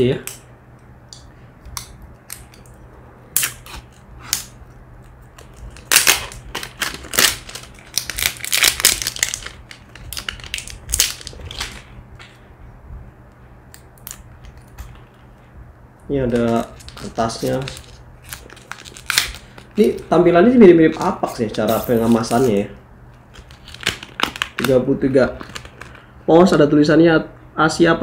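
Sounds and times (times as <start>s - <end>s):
plastic wrapping crinkling: 5.3s - 11.9s, 16.2s - 26.1s.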